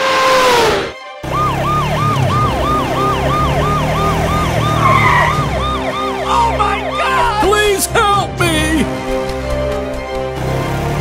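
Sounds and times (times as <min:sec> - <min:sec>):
police siren yelping: 0:01.2 - 0:07.9.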